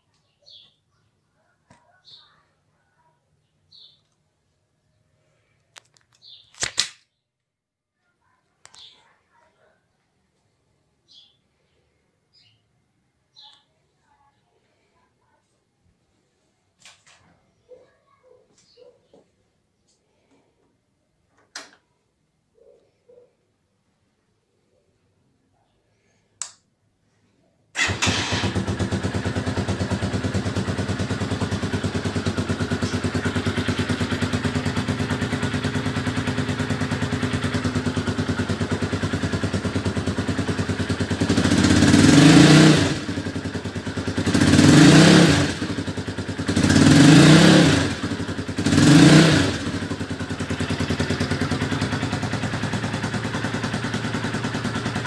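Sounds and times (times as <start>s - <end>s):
motorcycle engine idling and revving: 27.8s - 55.0s.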